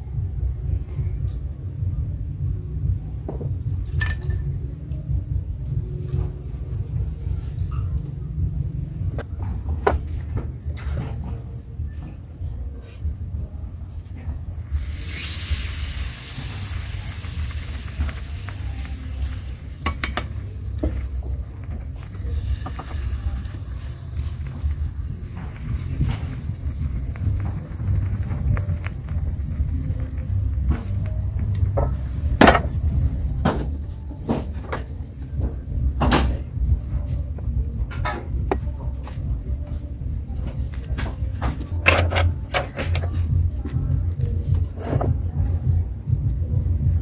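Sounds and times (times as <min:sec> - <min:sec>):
steady low rumble: 0:00.0 - 0:42.5, 0:43.1 - 0:47.0
batter sizzling: 0:14.6 - 0:35.8.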